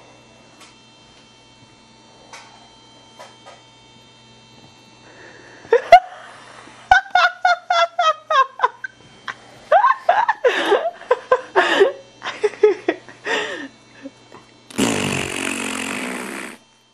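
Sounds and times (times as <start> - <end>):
person giggling: 5.7 - 6.3, 6.9 - 14.2.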